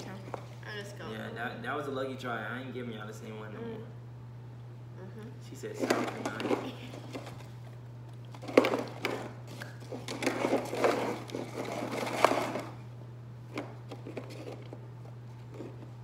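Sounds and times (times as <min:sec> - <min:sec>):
steady low hum: 0:00.0 - 0:16.0
crisps rattling in cardboard tube: 0:08.4 - 0:12.8.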